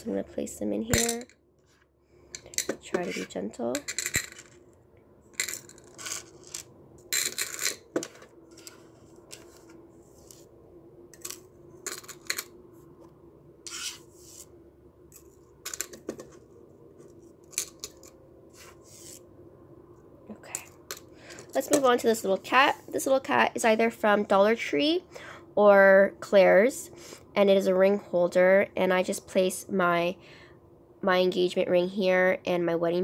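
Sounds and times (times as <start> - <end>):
metal jewelry clinking: 5.4 - 7.9.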